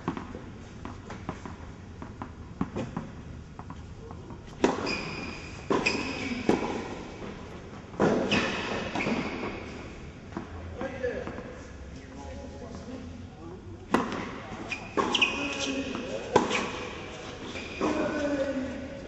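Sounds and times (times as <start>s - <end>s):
tennis ball hits and bounces: 5.7s - 6.9s, 13.9s - 14.4s.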